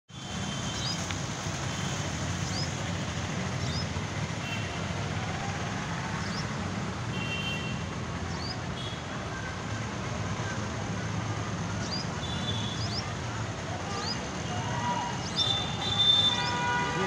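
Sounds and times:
traffic rumble: 0:00.1 - 0:17.0.

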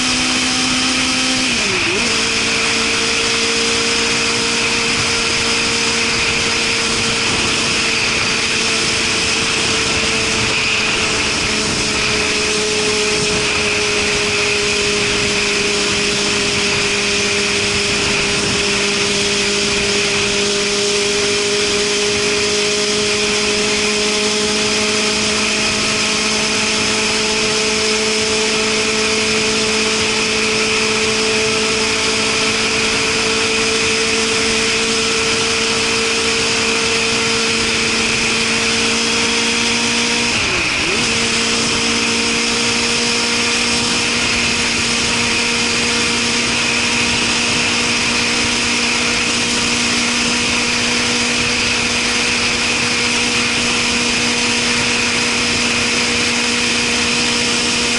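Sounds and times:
motorcycle engine cruising: 0:00.0 - 0:57.9
wind rushing: 0:04.2 - 0:22.2.

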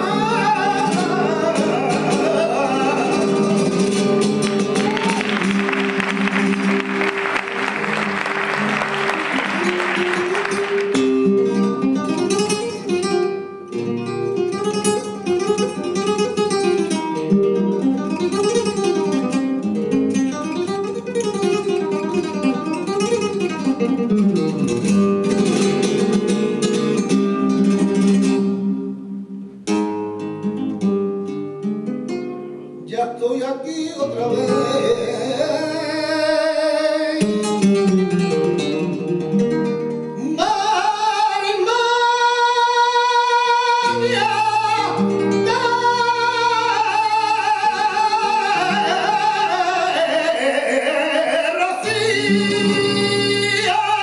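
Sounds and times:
person singing flamenco vocals: 0:00.0 - 0:28.7, 0:32.8 - 0:54.0
flamenco guitar: 0:00.0 - 0:54.0
applause: 0:04.4 - 0:11.2.

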